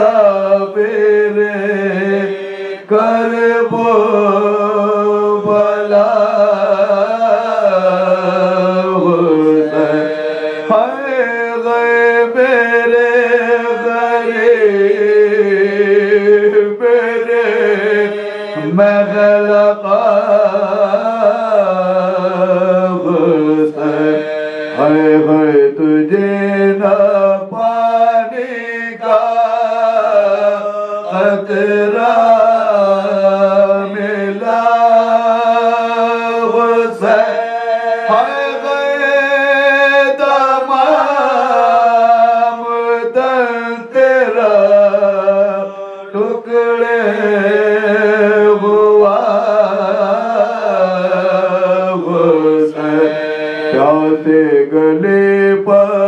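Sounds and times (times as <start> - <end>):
men chanting an elegy: 9.1 - 11.5, 23.3 - 25.6, 52.1 - 54.1.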